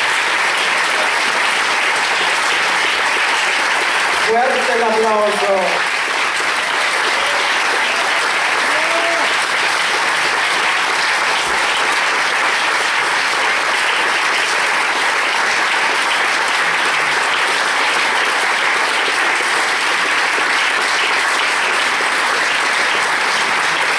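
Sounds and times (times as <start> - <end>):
audience applauding: 0.0 - 23.9.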